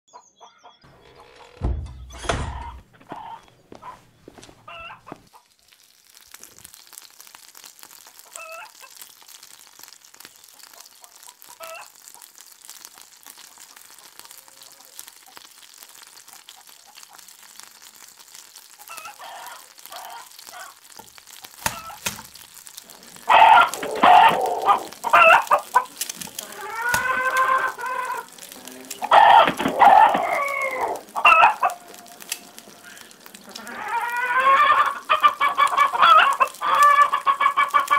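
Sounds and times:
chickens clucking: 2.5 - 5.5, 18.8 - 37.9
eggs sizzling in a pan: 3.2 - 37.9.

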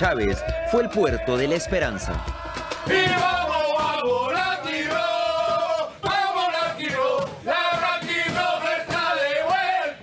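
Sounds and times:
men singing a chant: 2.0 - 10.0.

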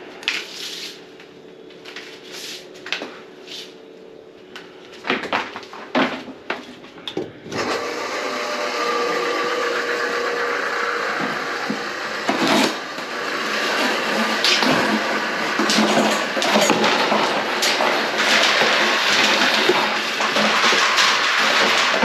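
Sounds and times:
electric motor running: 7.6 - 22.0
knocks and clatters: 13.7 - 22.0.

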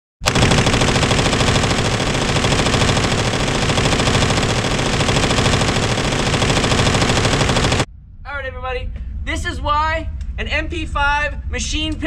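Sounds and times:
submachine gun automatic fire: 0.2 - 7.9.

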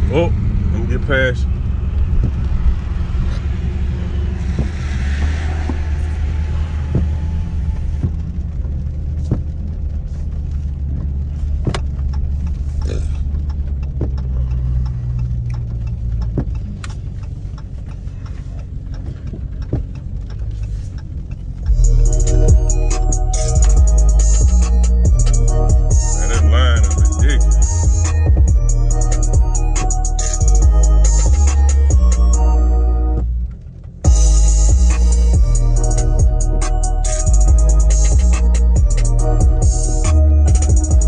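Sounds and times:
car engine drone from cabin: 0.0 - 41.0
music: 4.0 - 8.2, 21.7 - 33.4, 34.0 - 41.0
light ticks: 9.3 - 21.7.

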